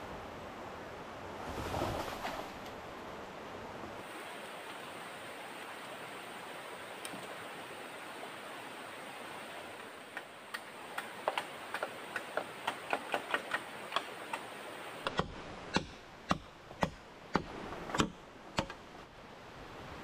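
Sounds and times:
machete chopping bamboo: 10.5s - 14.4s, 15.0s - 18.8s.

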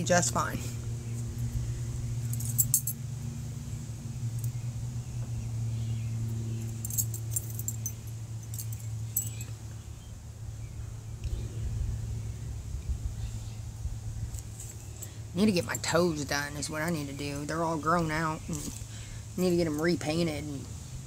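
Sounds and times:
steady low hum: 0.0s - 21.0s
small metal pieces jingling: 6.8s - 9.5s.

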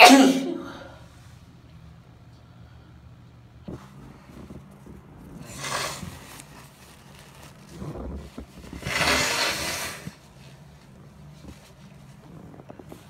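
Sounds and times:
woman blowing bursts of air: 8.8s - 10.2s.

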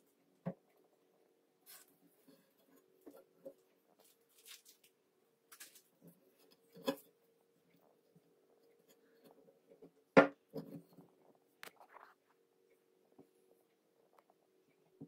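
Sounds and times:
faint steady hum: 0.0s - 15.0s
paper rustling: 4.0s - 5.9s.

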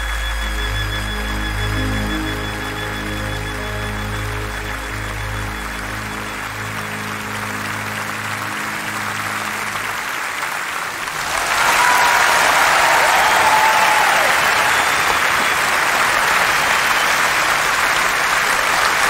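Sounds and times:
orchestra held chord: 0.4s - 11.4s
audience applauding: 3.4s - 19.0s.

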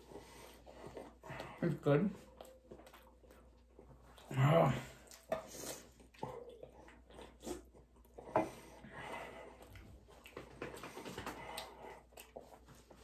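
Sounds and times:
person chewing and swallowing: 2.2s - 13.0s.

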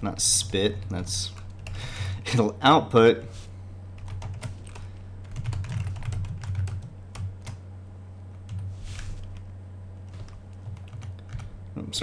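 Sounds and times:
steady low hum: 0.0s - 12.0s
computer keyboard typing: 4.0s - 7.6s, 8.5s - 9.4s, 10.1s - 11.5s.

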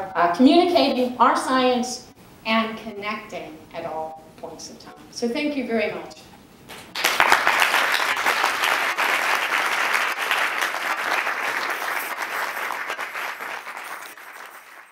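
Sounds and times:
audience applauding: 6.7s - 14.9s.

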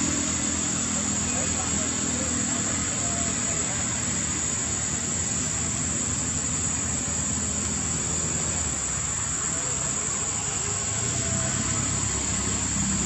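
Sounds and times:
high-pitched hiss: 0.0s - 13.0s.

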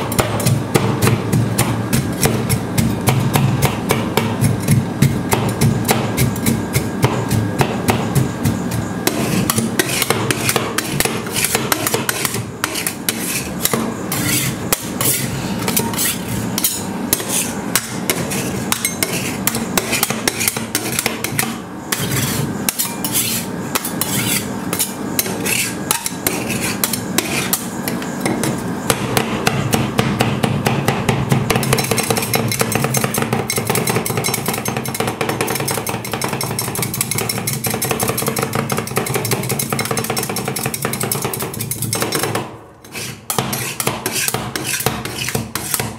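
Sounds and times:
steady hum: 0.0s - 45.9s
metal spatulas tapping on steel plate: 31.5s - 42.5s.

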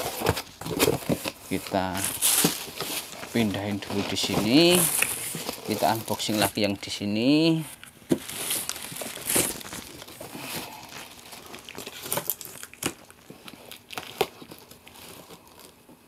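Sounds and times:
plastic sheeting crinkling: 1.4s - 6.7s, 7.4s - 15.8s.

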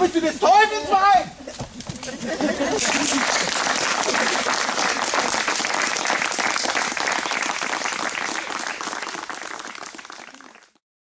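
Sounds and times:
audience applause: 2.8s - 10.8s.

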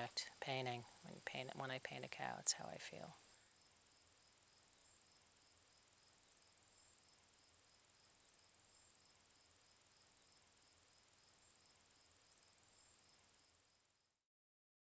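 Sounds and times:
lower pulsing insect call: 0.0s - 14.3s
high-pitched insect trill: 3.2s - 14.2s.

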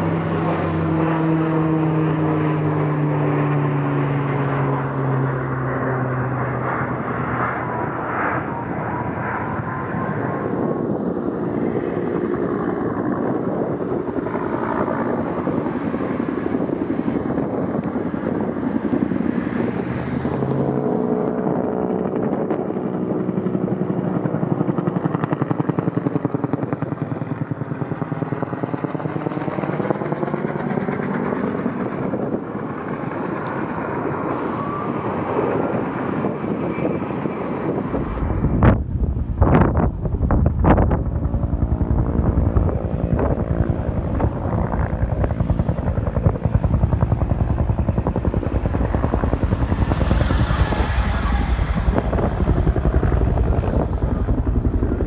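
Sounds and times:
helicopter rotor chopping: 0.0s - 55.0s.

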